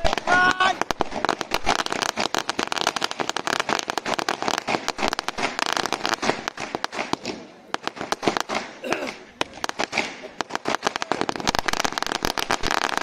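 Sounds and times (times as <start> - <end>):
firecrackers banging: 0.0 - 13.0.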